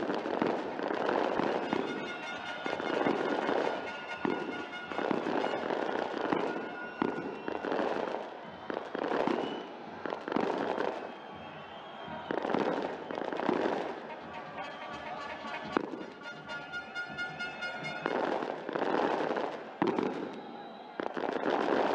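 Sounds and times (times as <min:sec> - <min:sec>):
crowd noise: 0:00.0 - 0:21.9
firecracker bangs: 0:00.0 - 0:21.9
music playing: 0:01.1 - 0:05.8, 0:12.1 - 0:18.6.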